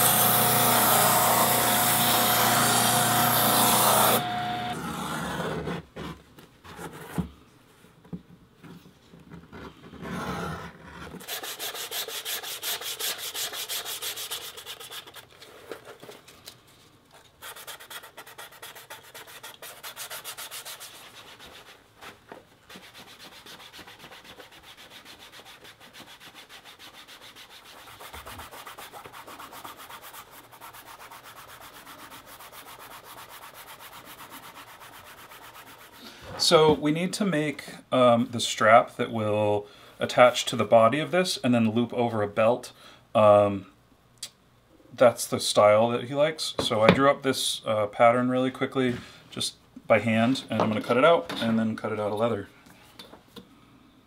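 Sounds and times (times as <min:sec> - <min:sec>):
hand rubbing leather edge: 0:17.4 - 0:36.0.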